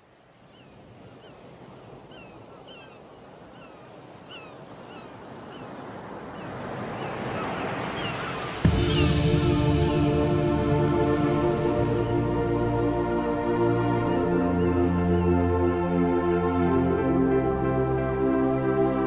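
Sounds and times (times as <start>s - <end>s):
bird calling: 0.5s - 9.2s
sea waves washing: 0.8s - 19.0s
music: 8.6s - 19.0s.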